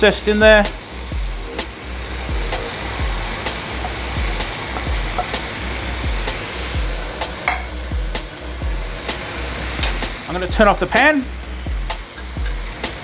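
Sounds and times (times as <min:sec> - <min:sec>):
chicken sizzling in a skillet: 0:00.0 - 0:13.0
crackles and pops of frying: 0:02.5 - 0:06.4, 0:09.8 - 0:10.1.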